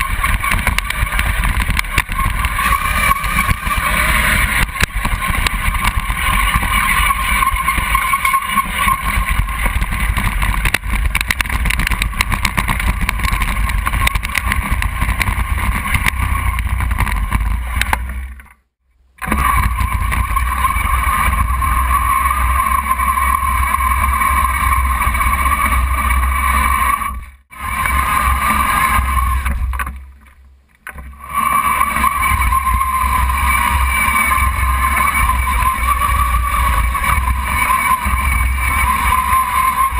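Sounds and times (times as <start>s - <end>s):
mechanical whine: 0.0s - 39.9s
low rumble of tracks: 19.0s - 39.9s.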